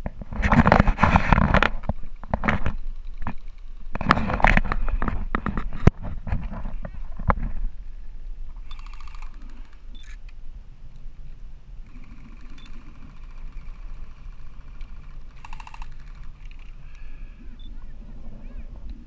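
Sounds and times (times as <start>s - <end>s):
faint steady tone: 6.7s - 19.0s
airsoft rifle rapid clicking shots: 8.6s - 9.8s, 11.9s - 16.8s.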